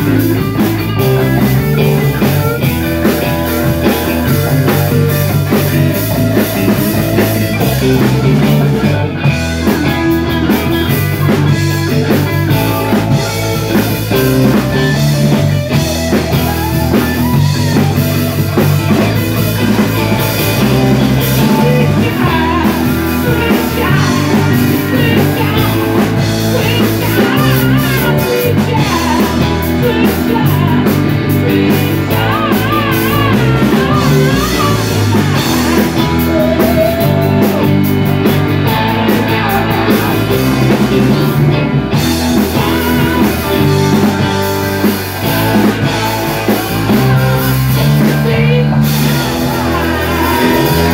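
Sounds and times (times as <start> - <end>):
bass guitar: 0.0 - 50.9
drum kit: 0.0 - 50.9
electric guitar: 0.0 - 50.9
man singing: 18.9 - 41.5, 42.2 - 50.9.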